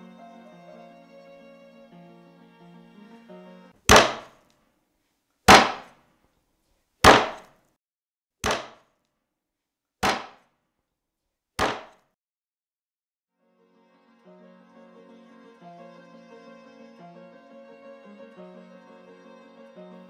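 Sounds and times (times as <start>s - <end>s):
cleaver chopping into wooden board: 3.9s - 4.3s, 5.5s - 5.9s, 7.0s - 7.5s, 8.4s - 8.8s, 10.0s - 10.4s, 11.6s - 12.0s.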